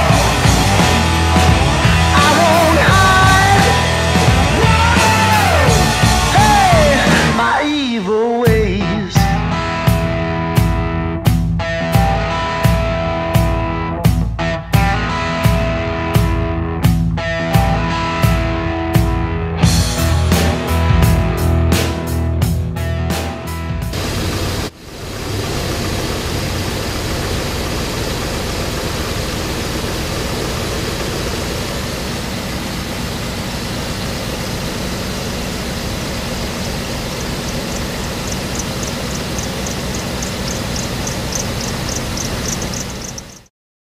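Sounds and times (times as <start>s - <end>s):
truck engine idling: 0.0s - 7.8s, 23.9s - 43.5s
rapid light ticking: 35.6s - 43.5s.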